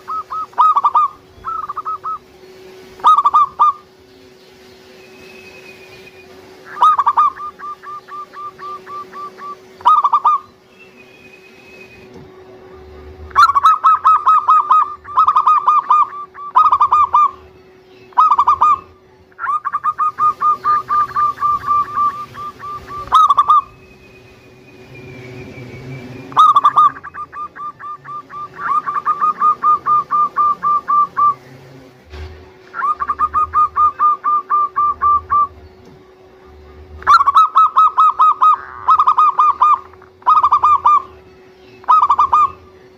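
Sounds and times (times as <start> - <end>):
dove cooing: 0.0 - 3.9, 6.5 - 10.6, 12.0 - 23.8, 26.3 - 31.4, 32.8 - 42.8.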